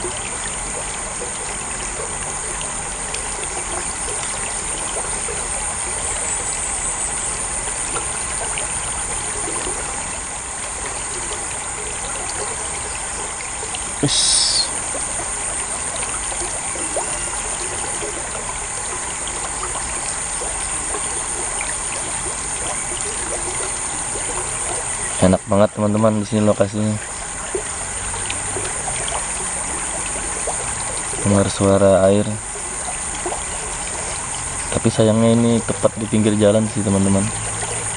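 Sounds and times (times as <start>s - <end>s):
water running through culvert: 0.0s - 37.9s.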